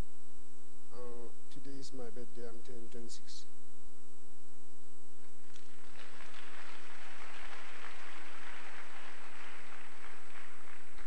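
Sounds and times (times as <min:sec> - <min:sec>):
electrical hum: 0:00.0 - 0:11.0
congregation applauding: 0:05.3 - 0:11.0.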